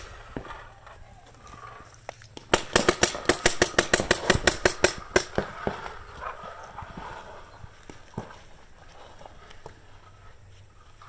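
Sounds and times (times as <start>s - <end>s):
paintball marker rapid firing: 2.4s - 5.9s.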